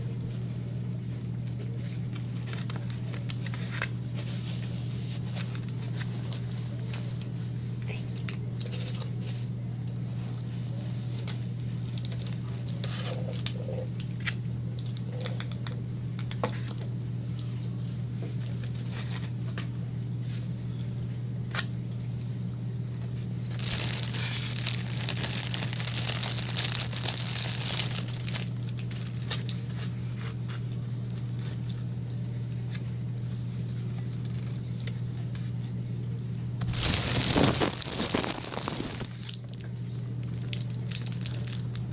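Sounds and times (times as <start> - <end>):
food packaging crinkling: 23.4 - 29.7, 36.6 - 41.9.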